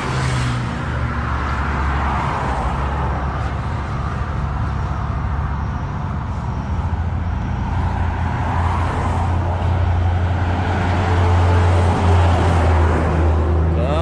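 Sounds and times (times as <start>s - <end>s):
highway traffic with heavy trucks: 0.0s - 14.0s.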